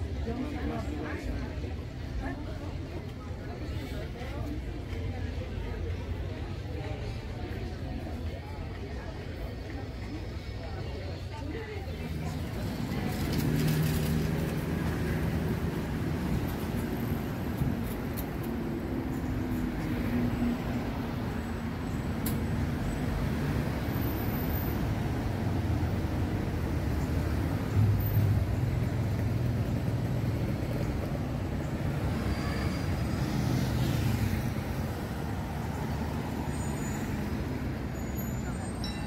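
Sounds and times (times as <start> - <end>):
cars passing: 12.0 - 39.0.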